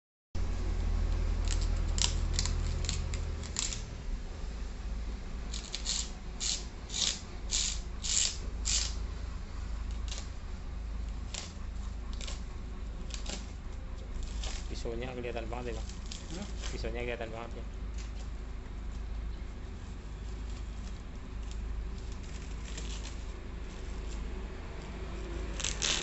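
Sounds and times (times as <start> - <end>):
low steady rumble: 0.4 - 26.0
plastic wrap ripping: 1.4 - 3.8, 14.1 - 14.9, 15.5 - 16.9, 20.5 - 24.2, 25.3 - 26.0.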